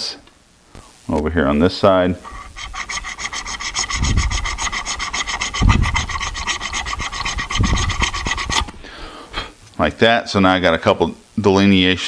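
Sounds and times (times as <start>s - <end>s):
hacksaw cutting metal: 2.4s - 8.8s.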